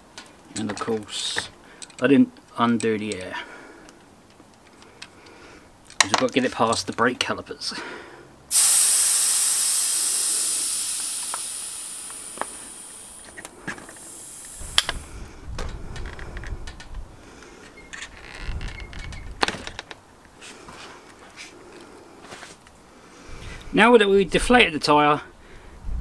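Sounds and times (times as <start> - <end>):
air hissing out of tyre valve: 8.5 - 15.3.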